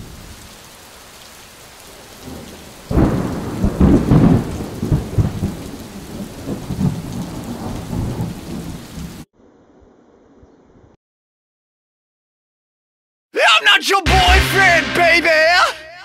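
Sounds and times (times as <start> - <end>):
steady rain: 0.0 - 9.3
rolling thunderclap: 2.2 - 9.2.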